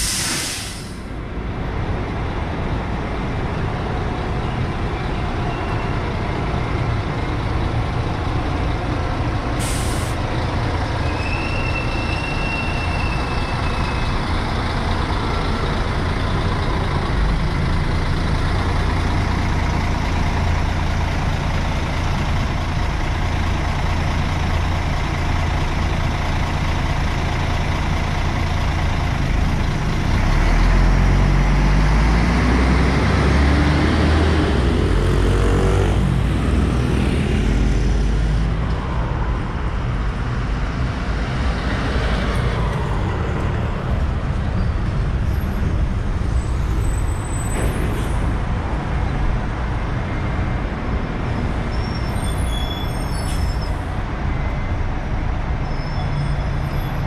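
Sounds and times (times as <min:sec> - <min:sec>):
compressed air hiss: 0:00.0 - 0:01.1, 0:09.6 - 0:10.2
bus engine idling and revving: 0:00.0 - 0:57.0.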